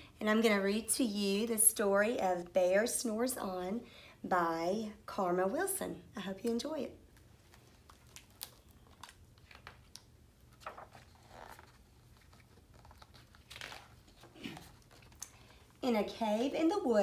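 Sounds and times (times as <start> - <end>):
book pages turning: 7.1 - 15.6.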